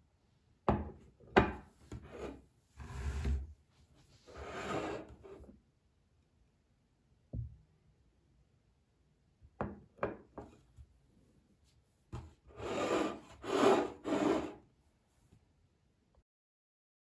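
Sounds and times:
plate scraping across table: 0:01.9 - 0:03.5, 0:04.3 - 0:05.4, 0:12.6 - 0:14.6.

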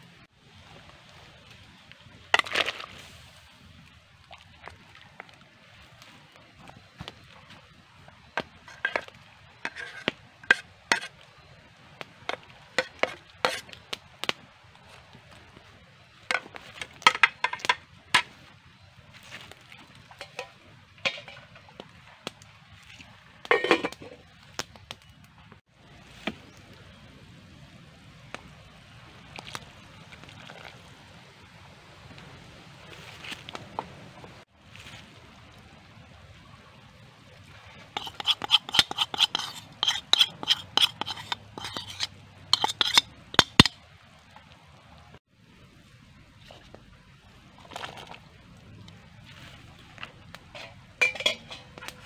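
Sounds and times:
metal pot and utensils clinking: 0:08.6 - 0:11.1, 0:12.3 - 0:13.7, 0:20.1 - 0:21.7, 0:23.4 - 0:24.2, 0:38.0 - 0:43.8, 0:50.5 - 0:52.0.

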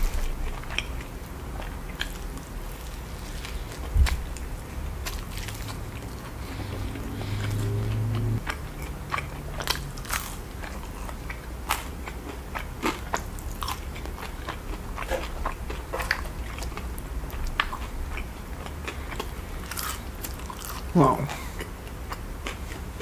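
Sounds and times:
chewing with wet mouth smacks: 0:00.0 - 0:23.0.

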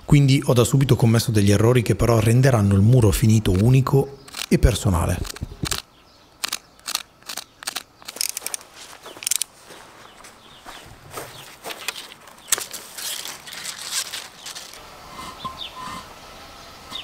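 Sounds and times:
bird chirping: 0:02.6 - 0:17.0
tools knocking and scraping stones: 0:11.7 - 0:16.1.

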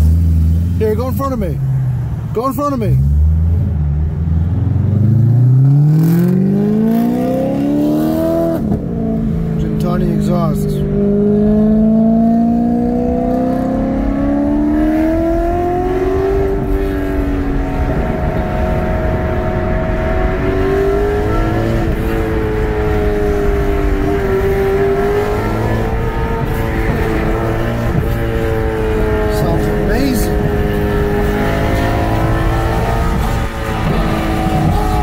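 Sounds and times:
car engine accelerating: 0:00.0 - 0:35.0
tyre and road noise: 0:00.0 - 0:35.0.

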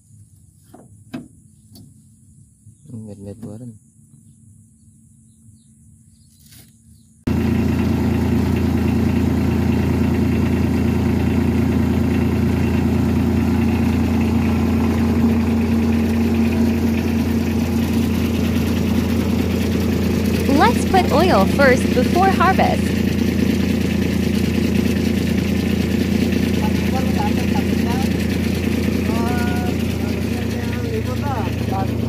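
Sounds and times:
combine harvester engine: 0:07.3 - 0:32.0.

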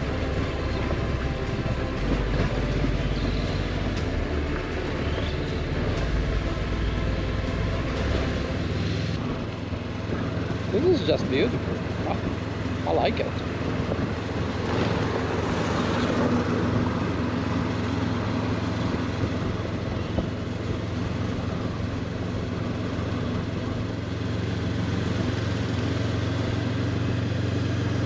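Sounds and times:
motorcycle engine running: 0:00.0 - 0:28.0
wind and road noise: 0:00.0 - 0:28.0.

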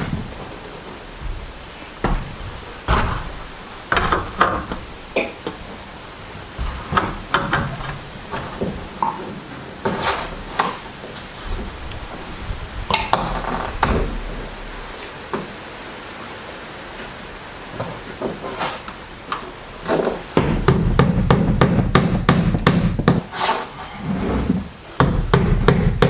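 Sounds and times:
knocks and clunks: 0:00.0 - 0:15.6, 0:19.3 - 0:23.2
rustling: 0:00.0 - 0:15.7, 0:16.9 - 0:20.4.

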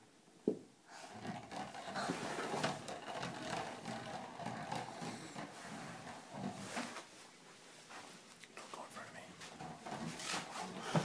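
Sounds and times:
plastic ball rolling on wood floor: 0:00.9 - 0:07.2, 0:09.4 - 0:11.0.

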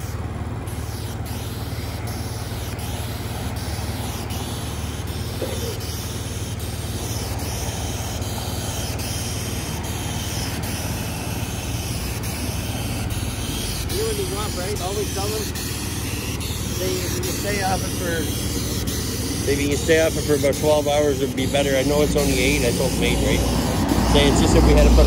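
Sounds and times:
low engine hum: 0:00.0 - 0:25.0
sealant spraying hiss: 0:00.0 - 0:25.0.

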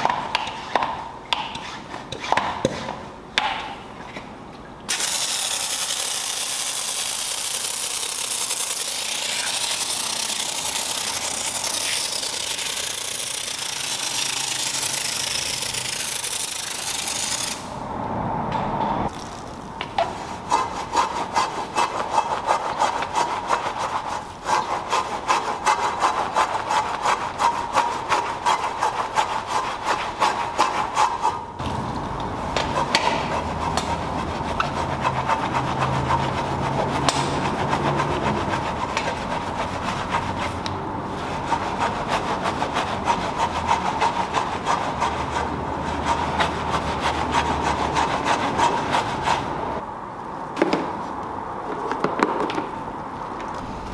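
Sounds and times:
brush scrubbing a wheel: 0:04.9 - 0:17.6, 0:19.2 - 0:31.4, 0:32.6 - 0:49.8.

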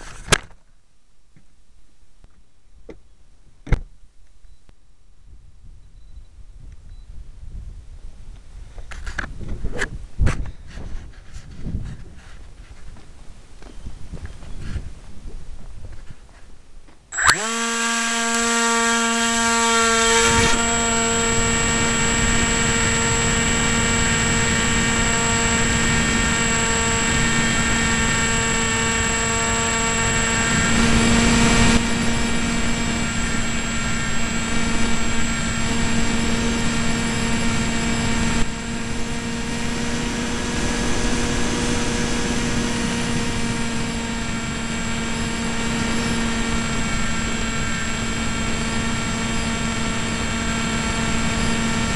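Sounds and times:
electric motor and propeller whine: 0:17.1 - 0:51.9.

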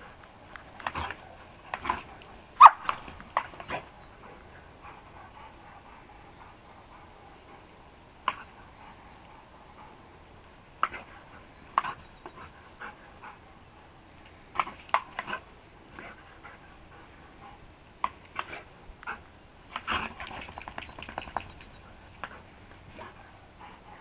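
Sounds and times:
dog barking: 0:02.6 - 0:02.9.

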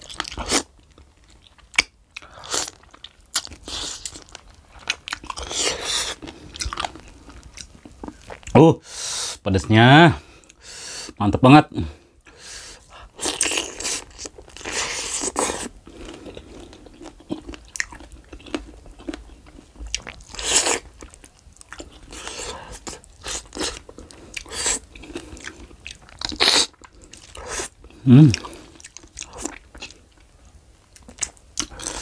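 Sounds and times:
biting crunching and chewing: 0:00.0 - 0:08.5, 0:13.2 - 0:30.1.

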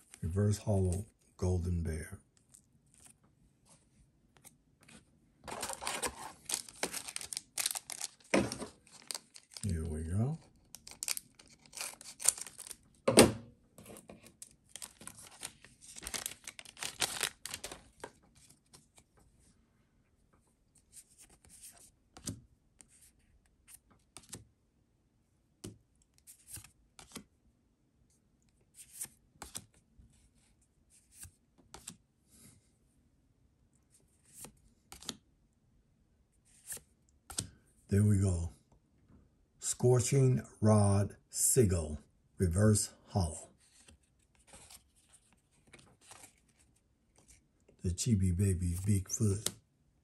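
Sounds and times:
trading cards sliding and flipping: 0:04.4 - 0:09.6, 0:31.0 - 0:32.0, 0:34.2 - 0:35.2, 0:36.5 - 0:37.6, 0:43.6 - 0:47.4
wrapper tearing and crinkling: 0:05.5 - 0:09.7, 0:10.7 - 0:12.8, 0:14.7 - 0:17.8.

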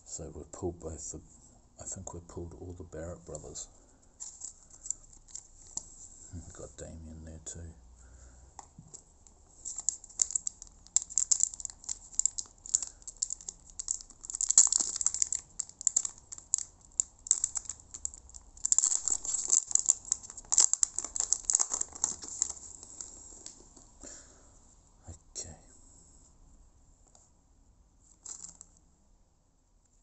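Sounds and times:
foil wrapper crinkling: 0:04.2 - 0:06.0, 0:09.6 - 0:23.7, 0:28.1 - 0:28.7.

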